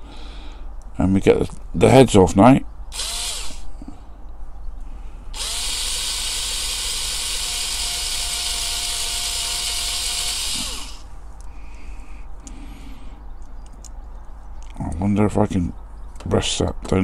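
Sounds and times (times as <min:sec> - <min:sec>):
cordless drill whining: 0:02.9 - 0:03.6, 0:05.4 - 0:11.1.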